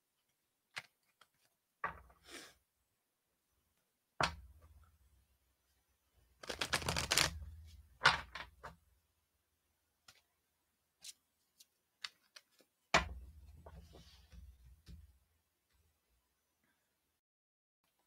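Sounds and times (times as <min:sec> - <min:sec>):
cards clicking and flicking: 0:06.4 - 0:07.4.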